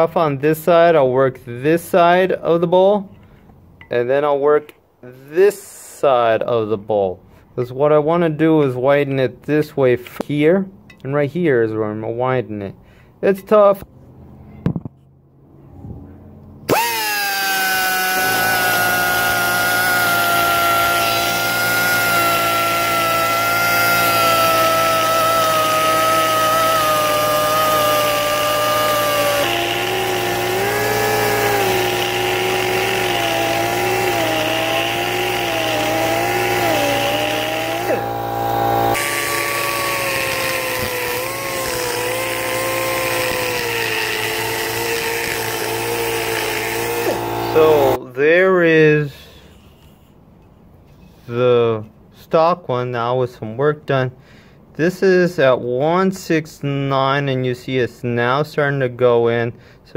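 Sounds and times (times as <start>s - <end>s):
die grinder whining on metal: 16.7s - 48.0s.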